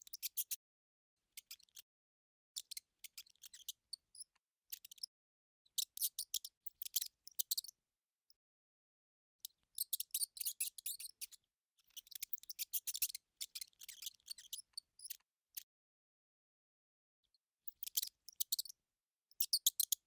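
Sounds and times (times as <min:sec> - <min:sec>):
mouse scurrying clicks and scratches: 0:01.4 - 0:01.8, 0:02.6 - 0:05.1, 0:09.5 - 0:15.7, 0:19.3 - 0:20.0.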